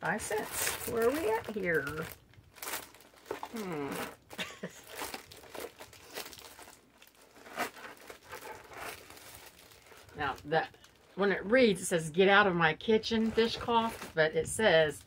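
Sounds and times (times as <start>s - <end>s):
paper and packaging rustling: 0.0s - 11.8s, 13.0s - 15.0s
woman murmuring: 3.5s - 4.1s.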